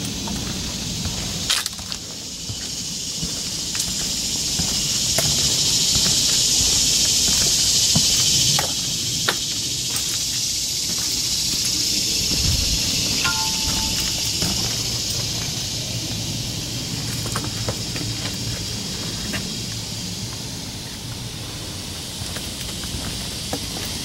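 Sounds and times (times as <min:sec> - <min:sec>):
footsteps on wooden boardwalk: 0:00.0 - 0:15.7, 0:17.0 - 0:24.0
high-pitched insect buzz: 0:00.2 - 0:16.0.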